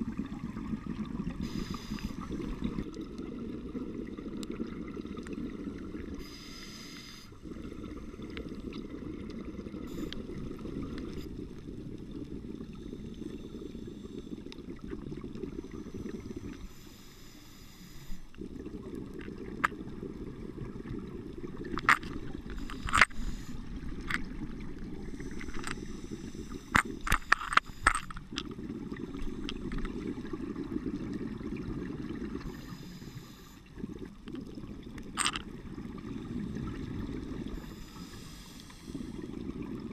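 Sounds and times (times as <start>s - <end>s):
underwater exhaled air bubbling: 0.0s - 39.9s
regulator hiss: 1.4s - 2.6s, 6.2s - 8.2s, 15.7s - 18.3s, 22.6s - 23.8s, 32.5s - 33.6s, 37.5s - 39.2s.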